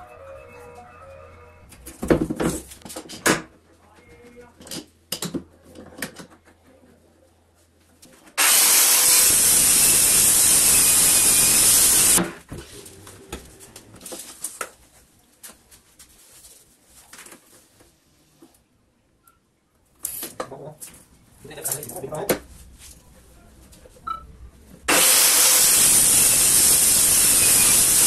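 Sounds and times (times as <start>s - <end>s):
circular saw cutting board: 8.4s - 12.4s, 24.9s - 28.0s.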